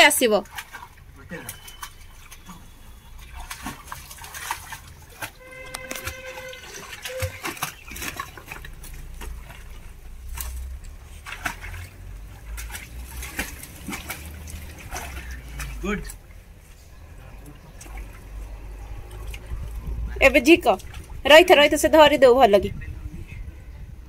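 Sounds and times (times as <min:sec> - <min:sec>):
muddy water splashing: 0:00.1 - 0:22.6.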